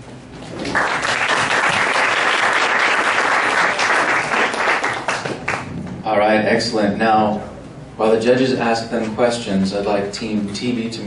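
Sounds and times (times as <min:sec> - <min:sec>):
audience applauding: 0:00.6 - 0:05.7.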